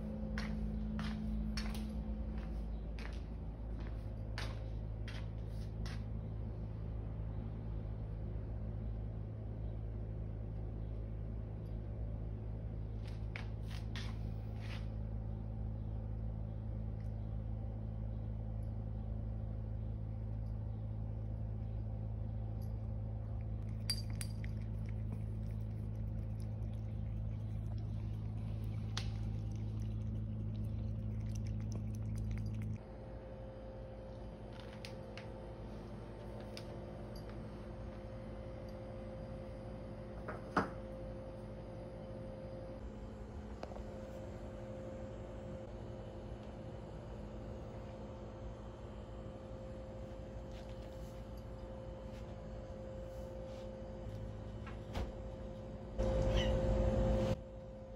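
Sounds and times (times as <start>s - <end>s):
steady low hum: 0.0s - 57.9s
cat chewing food: 23.2s - 32.8s.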